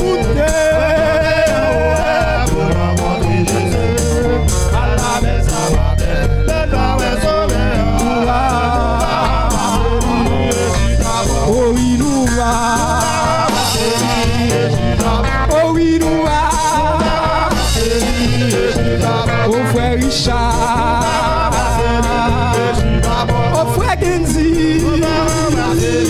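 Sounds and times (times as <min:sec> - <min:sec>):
drum kit beat: 0:00.0 - 0:26.0
low bass line: 0:00.0 - 0:26.0
men's vocal group singing gospel: 0:00.0 - 0:26.0.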